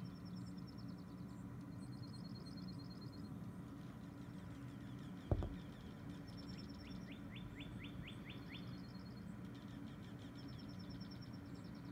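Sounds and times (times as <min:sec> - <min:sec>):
songbirds trilling: 0:00.0 - 0:11.9
steady low hum: 0:00.0 - 0:11.9
single thump: 0:05.3 - 0:05.6.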